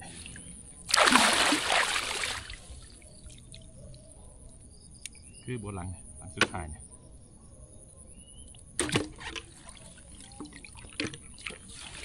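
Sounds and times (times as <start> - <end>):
water dripping: 0.9 - 2.6
water splashing off trap: 0.9 - 2.6.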